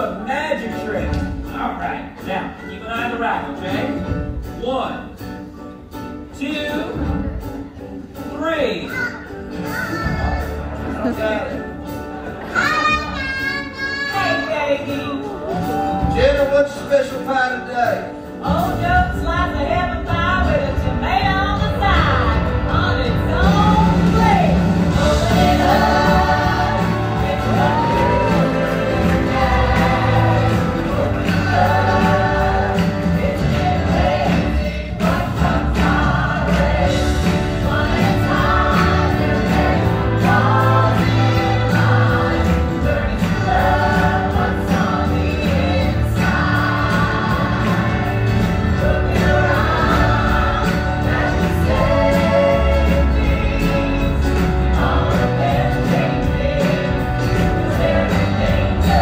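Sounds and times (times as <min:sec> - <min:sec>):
band accompaniment: 0:00.0 - 0:59.0
cast singing in chorus: 0:24.9 - 0:59.0.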